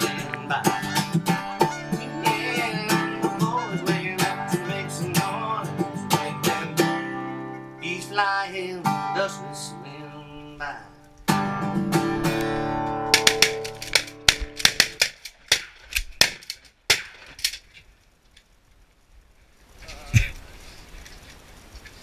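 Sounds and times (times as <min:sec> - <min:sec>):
country music with strummed guitar: 0:00.0 - 0:15.0.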